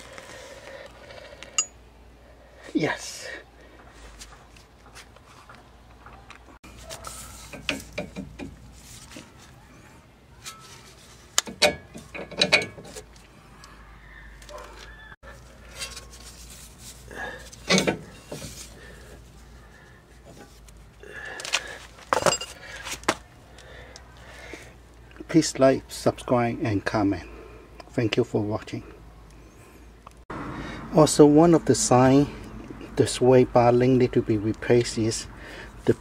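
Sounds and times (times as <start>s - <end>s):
wrench and metal hardware clinking: 1.5s - 1.8s, 10.4s - 13.2s, 17.5s - 18.6s, 22.1s - 22.7s.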